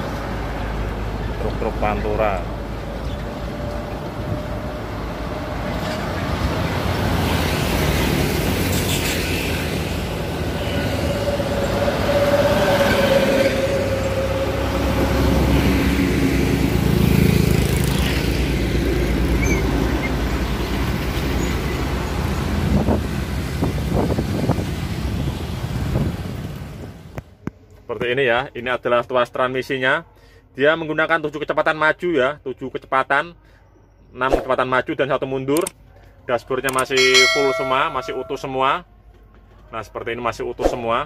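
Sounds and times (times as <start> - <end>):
trucks passing: 0.0 - 27.1, 37.0 - 38.5
motorcycles passing: 4.8 - 26.3
steady high tone: 37.0 - 38.7.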